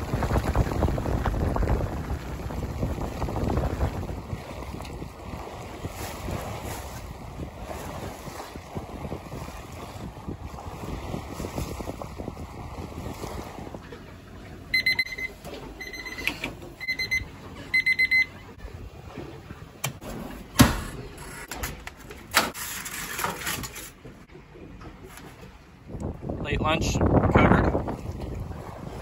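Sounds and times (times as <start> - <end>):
electronic alarm beeping: 14.7 - 18.4.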